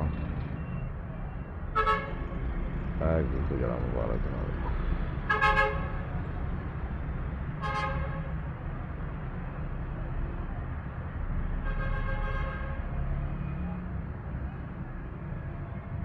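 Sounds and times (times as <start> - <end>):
horn honks: 1.8 - 2.2, 5.3 - 6.0, 7.6 - 8.3
steady low rumble: 2.2 - 5.3.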